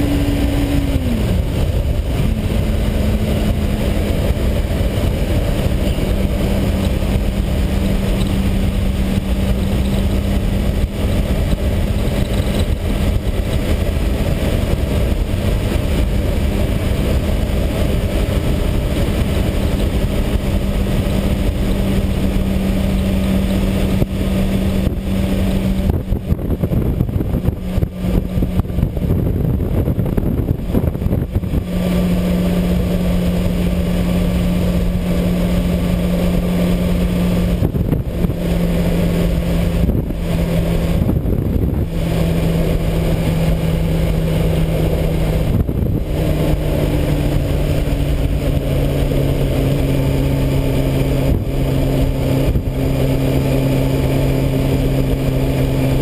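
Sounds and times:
motorcycle engine cruising: 0.0s - 56.0s
wind and road noise: 0.0s - 56.0s.

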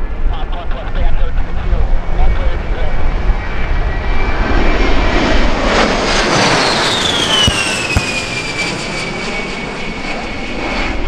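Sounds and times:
jet roaring overhead: 1.5s - 11.0s.

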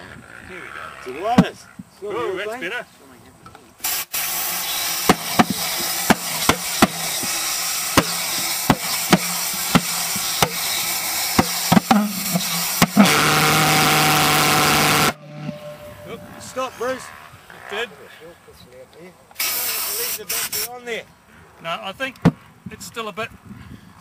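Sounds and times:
compressed air hissing: 3.8s - 15.2s, 19.4s - 20.8s
pulsejet engine buzzing: 3.8s - 17.5s
sharp engine pops: 5.0s - 13.7s.

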